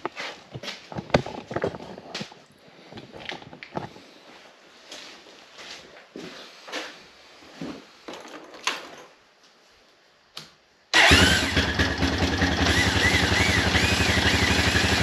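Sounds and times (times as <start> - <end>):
click: 10.3 - 10.6
electric starter turning engine: 11.0 - 15.0
engine idling: 11.0 - 15.0.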